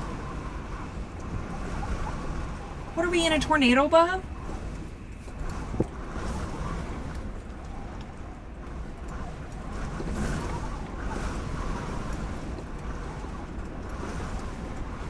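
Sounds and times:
strong wind buffeting rumble: 0.0 - 15.0.

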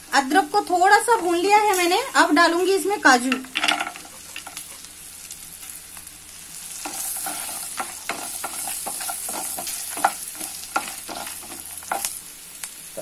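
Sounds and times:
spices sizzling in oil: 0.0 - 13.0
wooden spatula scraping pan: 6.8 - 12.1.

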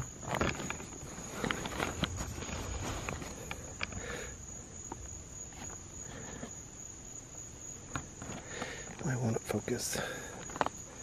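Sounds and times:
insect trilling: 0.0 - 11.0.

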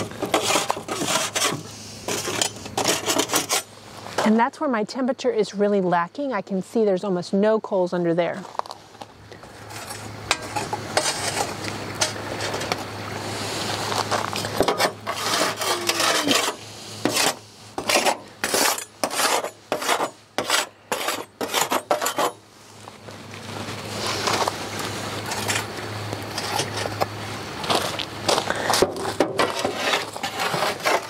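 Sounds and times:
tongs scraping charcoal in metal: 0.0 - 4.4, 9.7 - 12.8, 14.0 - 22.4, 25.2 - 31.0
coals scraping and clinking: 0.0 - 4.8, 8.4 - 31.0.

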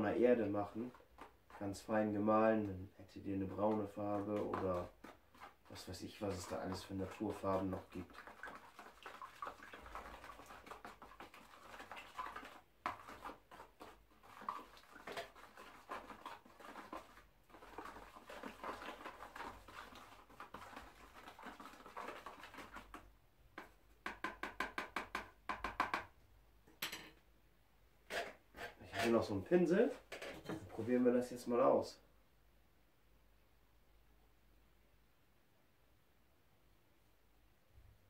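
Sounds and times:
stick stirring paint in tub: 0.0 - 26.2, 28.0 - 31.4.

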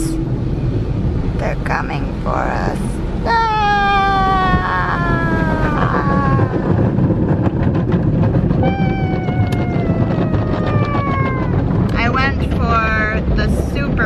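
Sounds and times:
high whine sliding down: 3.2 - 13.2.

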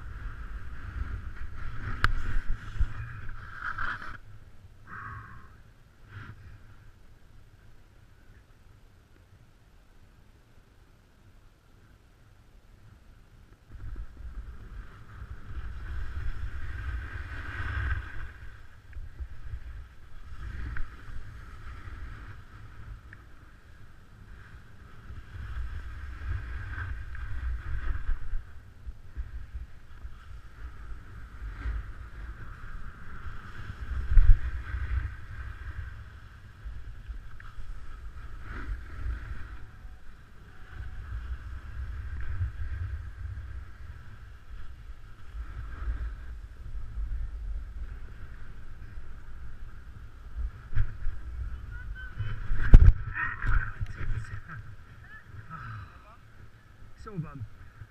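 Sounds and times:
snowboard scraping over snow: 0.0 - 4.4, 13.7 - 55.4
wind rumble on microphone: 0.0 - 10.4, 11.3 - 57.9.

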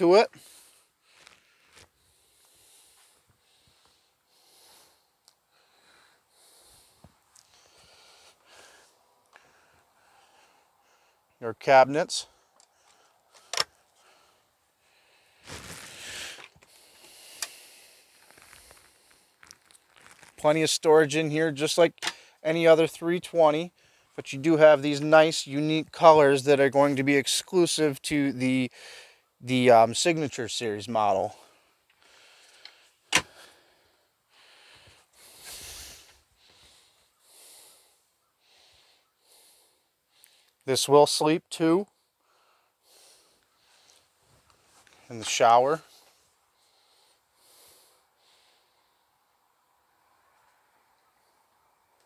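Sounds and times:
person breathing: 0.3 - 11.4, 12.2 - 19.5, 23.7 - 24.2, 28.7 - 29.3, 31.3 - 40.6, 42.0 - 44.2, 45.8 - 49.2
rustling: 15.3 - 20.4.

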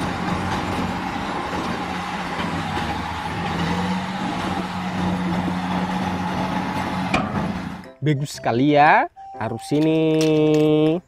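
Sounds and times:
truck diesel engine running: 0.0 - 7.9.

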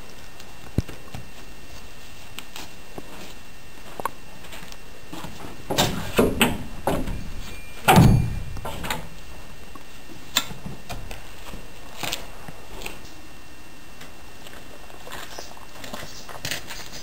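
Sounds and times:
heavy thud: 5.4 - 9.2.

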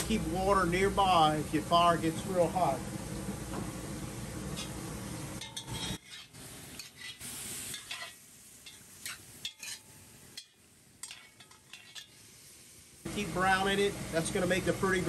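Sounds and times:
light sizzling in oil: 0.0 - 15.0
metal spoon scraping pot: 5.4 - 7.2, 11.0 - 12.1.

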